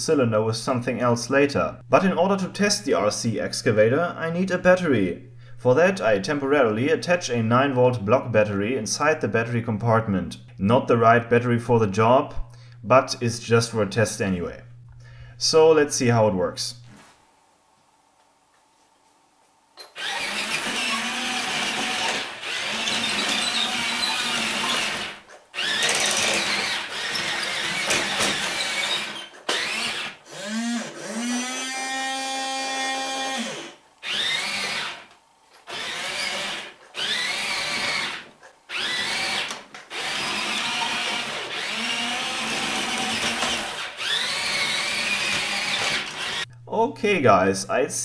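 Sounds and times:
small electric motors whirring: 19.8s - 46.5s.

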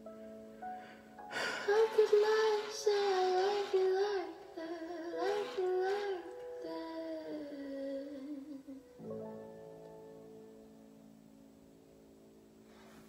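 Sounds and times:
held keyboard chords: 0.0s - 13.0s
woman singing slow melody: 1.3s - 9.0s.

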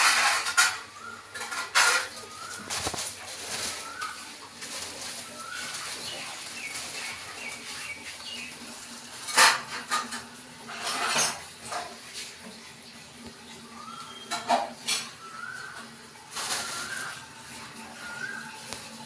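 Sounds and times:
plastic bag crinkling: 1.5s - 8.0s, 16.3s - 17.2s
faint high chirps: 13.6s - 15.8s.

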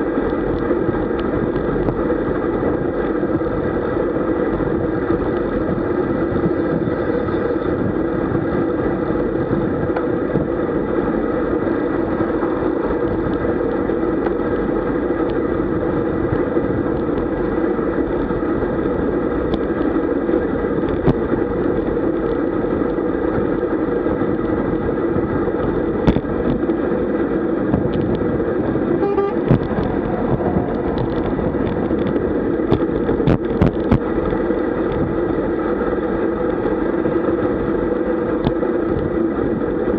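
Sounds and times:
road rumble: 0.0s - 39.9s
wind rush: 0.0s - 39.9s.

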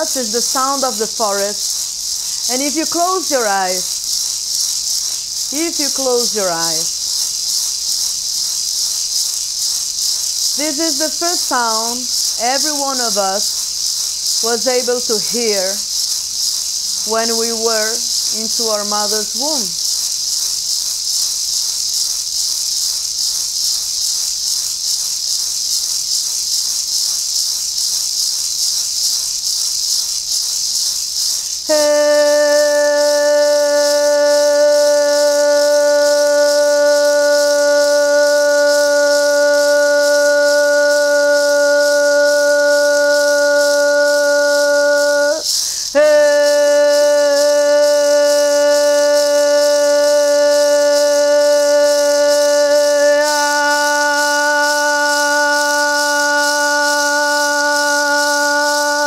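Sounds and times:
woman chanting held note: 0.0s - 1.6s, 2.4s - 3.9s, 5.5s - 6.9s, 10.6s - 13.4s, 14.4s - 15.8s, 17.1s - 19.8s, 31.7s - 59.0s
maraca rattling: 0.0s - 59.0s.

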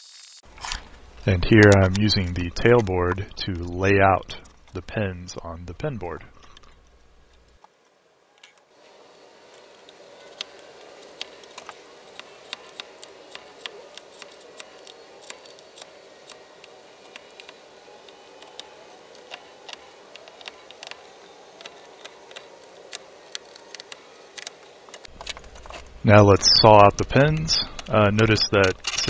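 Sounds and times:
faint steady hiss: 0.0s - 29.0s
knife scratching wood: 10.3s - 17.6s.

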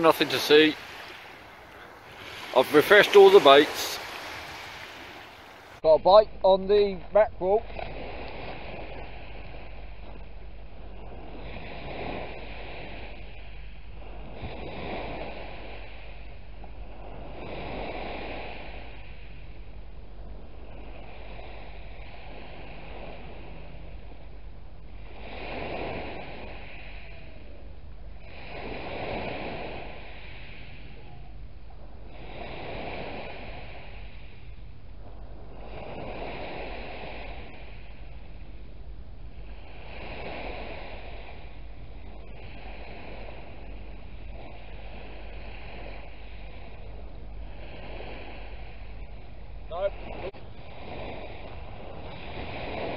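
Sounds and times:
small waves on shingle beach: 0.0s - 5.9s, 10.8s - 19.2s, 25.0s - 27.4s, 28.2s - 31.0s, 32.0s - 34.3s, 35.1s - 38.4s, 39.4s - 52.9s
waves washing on shingle: 0.0s - 5.9s
wind rumble on microphone: 0.0s - 52.9s.

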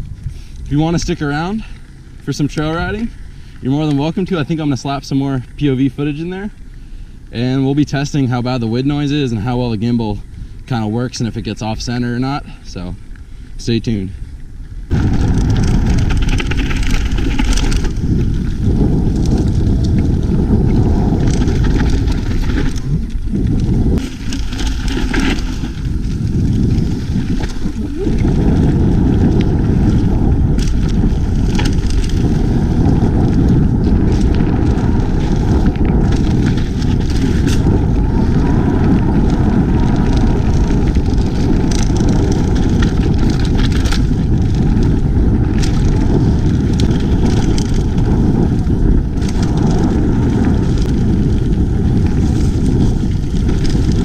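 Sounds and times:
wind buffeting microphone: 0.0s - 54.0s
bike clicks and knocks: 14.4s - 54.0s.

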